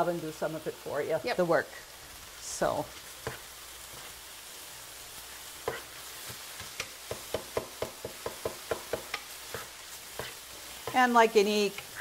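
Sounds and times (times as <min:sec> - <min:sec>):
meat sizzling in a skillet: 0:00.0 - 0:12.0
utensil scraping a pan: 0:08.9 - 0:11.0.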